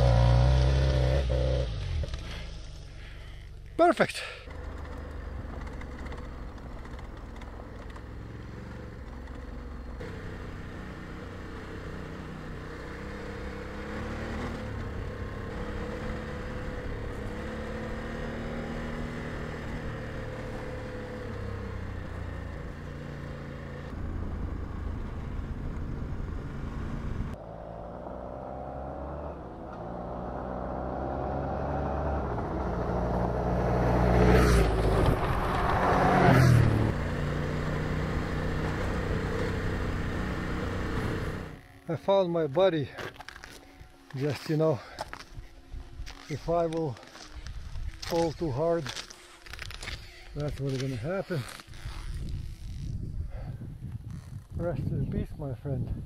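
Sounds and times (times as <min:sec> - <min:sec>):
motorcycle engine running: 0:00.0 - 0:27.6.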